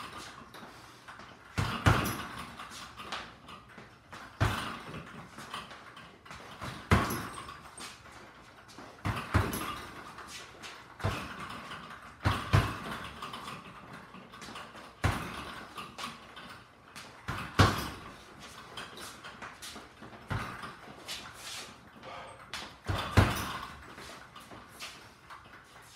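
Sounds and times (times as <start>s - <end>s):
punches thudding on heavy bag: 1.6s - 2.6s, 4.2s - 5.2s, 6.4s - 7.6s, 9.0s - 10.1s, 11.0s - 13.3s, 15.0s - 15.7s, 17.2s - 18.2s, 20.2s - 20.8s, 22.8s - 23.8s.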